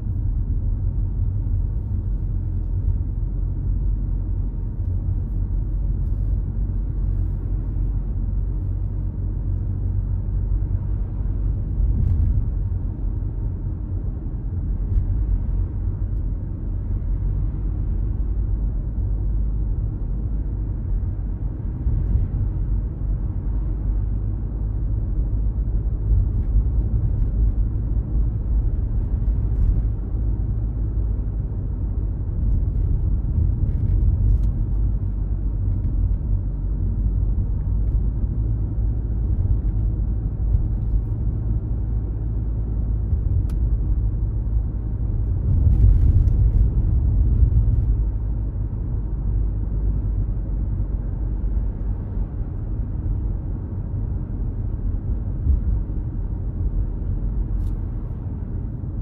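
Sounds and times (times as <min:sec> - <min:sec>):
road and engine rumble: 0:00.0 - 0:59.0.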